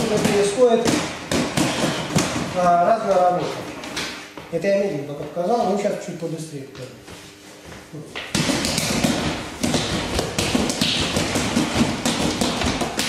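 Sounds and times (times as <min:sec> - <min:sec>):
slaps and punches on rubber dummy: 0:00.0 - 0:02.6, 0:08.2 - 0:13.0.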